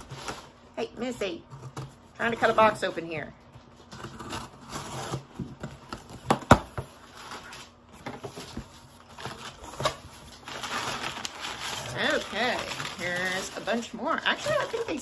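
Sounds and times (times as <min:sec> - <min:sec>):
cardboard and tape scraping: 0:03.7 - 0:06.2.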